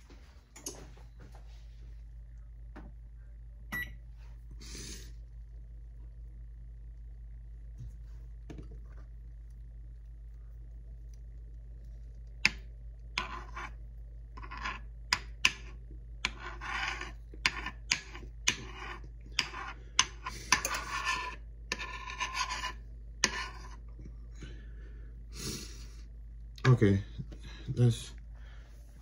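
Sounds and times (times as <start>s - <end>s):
metal spoon scraping frying pan: 16.3s - 23.8s.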